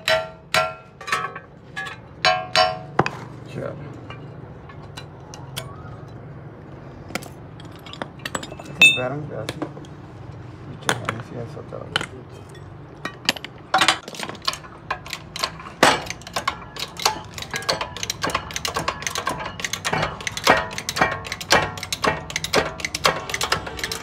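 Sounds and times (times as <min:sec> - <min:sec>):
metallic clicks and knocks of tools: 0:11.9 - 0:24.0.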